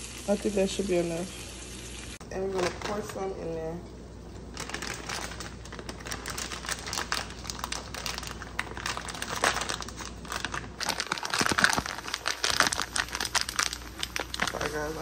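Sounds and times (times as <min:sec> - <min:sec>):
plastic bag crinkling: 0:02.4 - 0:03.3, 0:04.4 - 0:15.0.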